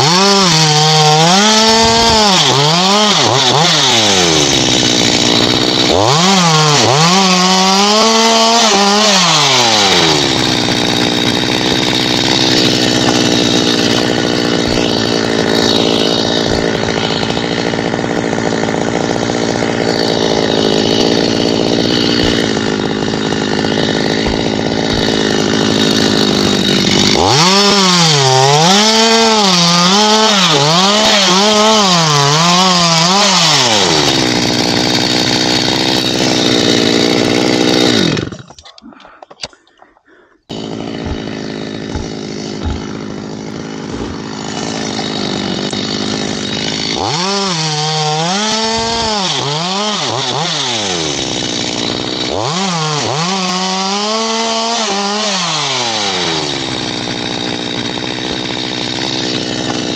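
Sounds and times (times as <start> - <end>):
chainsaw cutting wood: 0.0 - 59.9.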